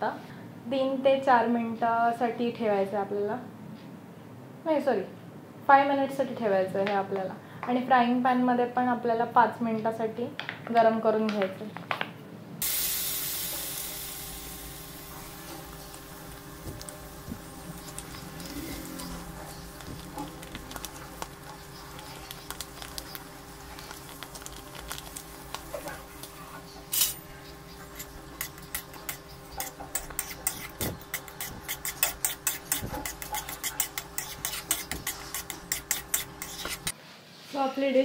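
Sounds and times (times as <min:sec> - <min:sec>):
metal spoon scraping a pan: 0:15.3 - 0:37.0.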